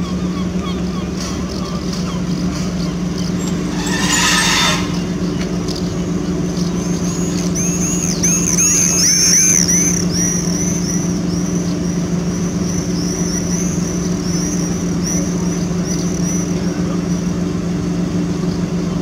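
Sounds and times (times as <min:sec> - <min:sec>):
locomotive diesel engine running: 0:00.0 - 0:19.0
metallic wheel squeals: 0:01.3 - 0:10.6.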